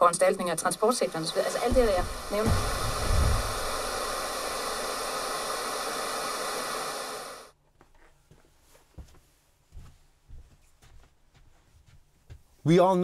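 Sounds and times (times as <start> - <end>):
radio static hiss: 0.0 - 7.5.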